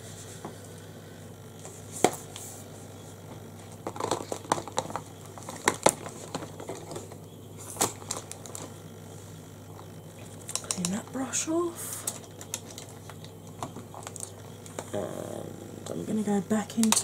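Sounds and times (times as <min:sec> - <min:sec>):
crinkling rustles: 0:01.7 - 0:11.0, 0:12.0 - 0:15.0.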